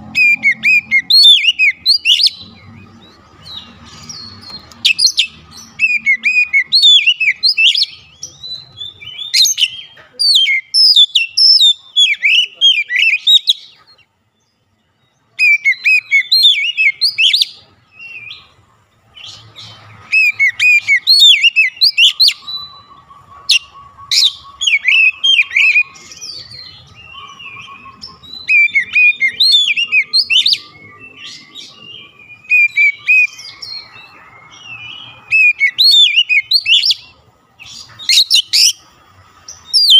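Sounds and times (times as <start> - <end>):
bird singing whistled phrases: 0.0 - 2.8, 3.5 - 13.7, 15.4 - 18.5, 20.1 - 38.8, 39.6 - 39.9.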